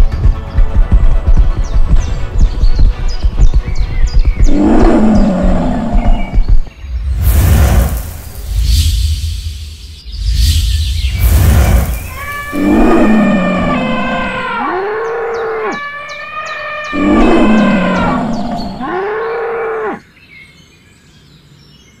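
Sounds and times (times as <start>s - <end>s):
magic whoosh sound effect: 6.8s - 12.6s
loud pitched animal call: 12.0s - 20.0s.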